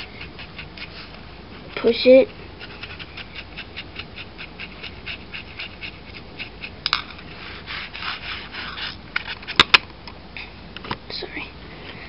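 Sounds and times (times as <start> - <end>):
paintbrush scrubbing plastic: 0.0 - 9.6.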